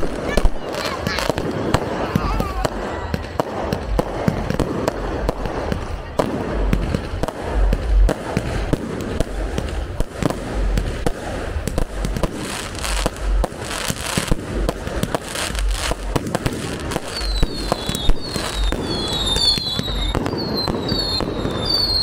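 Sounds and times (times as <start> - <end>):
firework hiss and crackle: 0.0 - 22.0
firework whistles: 11.9 - 22.0.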